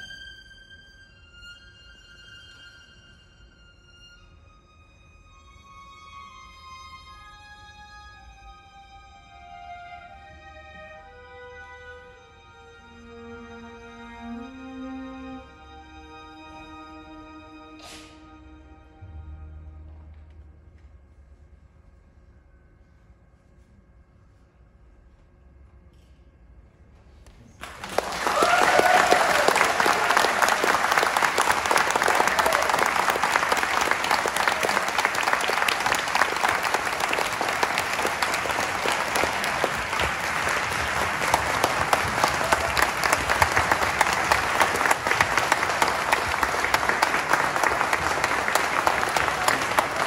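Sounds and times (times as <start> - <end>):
audience applause: 27.6 - 50.0.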